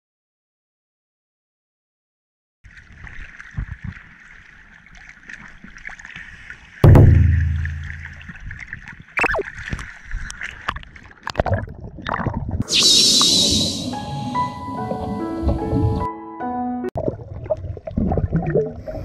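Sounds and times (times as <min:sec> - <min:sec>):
waves splashing against camera: 0:02.7 - 0:16.1
loud low thump: 0:06.8 - 0:08.4.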